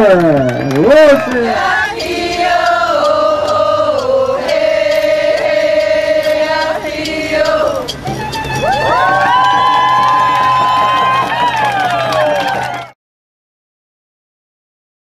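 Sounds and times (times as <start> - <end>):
crowd chanting in unison: 1.0 - 8.0.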